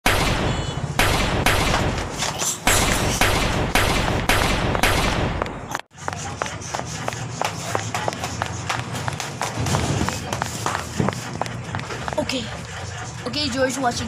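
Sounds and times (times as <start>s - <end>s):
rapid gunshots: 0.0s - 5.4s.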